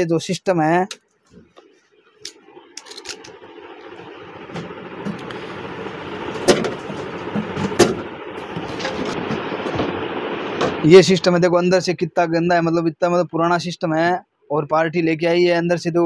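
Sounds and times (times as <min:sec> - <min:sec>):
steady noise: 0:01.6 - 0:13.1.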